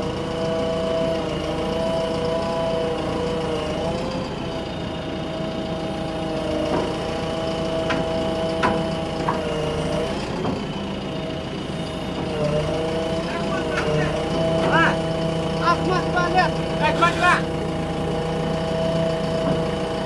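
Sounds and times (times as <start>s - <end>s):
diesel engine running: 0.0s - 20.0s
short knocks: 6.6s - 10.7s.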